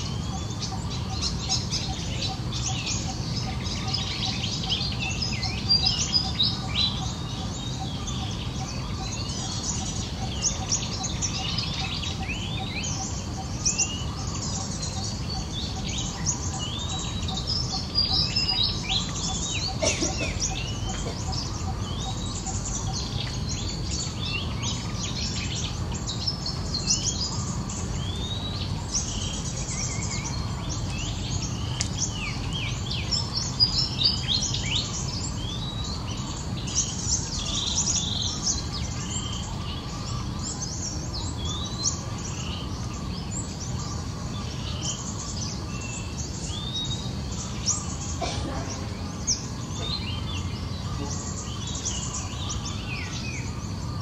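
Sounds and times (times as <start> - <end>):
small birds chirping: 0.0 - 54.0.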